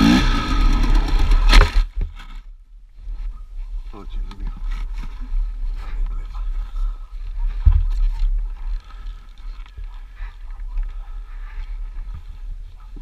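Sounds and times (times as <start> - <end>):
faint dirt bike engine: 0.0 - 13.0.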